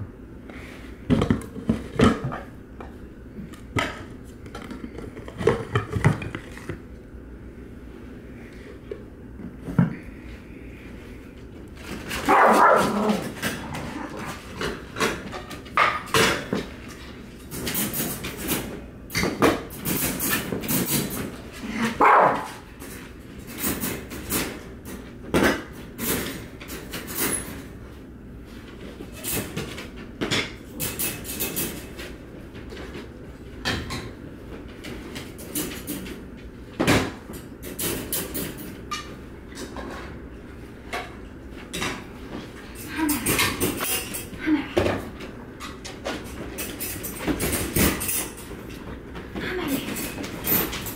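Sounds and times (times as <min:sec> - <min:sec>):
dogs barking: 0:12.3 - 0:13.3, 0:22.0 - 0:22.6.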